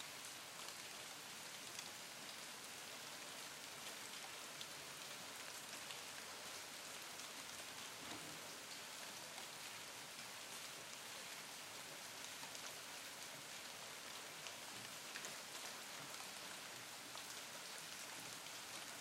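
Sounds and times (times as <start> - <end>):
rain falling on leaves: 0.0 - 19.0.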